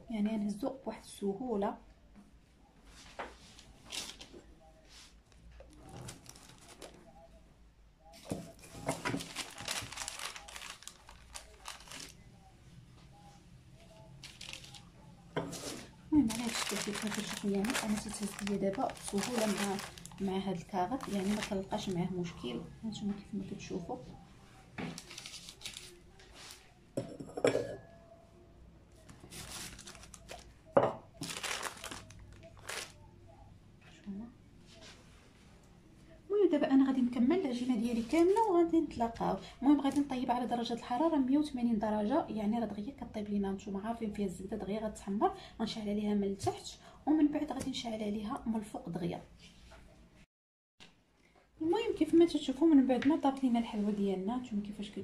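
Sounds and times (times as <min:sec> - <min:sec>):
parchment paper crinkling: 0:05.7 - 0:07.0, 0:08.6 - 0:12.2, 0:14.2 - 0:14.9, 0:15.7 - 0:22.0, 0:24.8 - 0:26.7, 0:29.1 - 0:30.5, 0:31.2 - 0:33.0.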